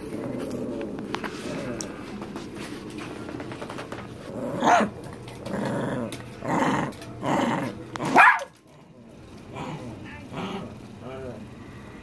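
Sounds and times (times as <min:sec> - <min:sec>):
small dog growling: 0:00.0 - 0:02.1, 0:04.2 - 0:11.6.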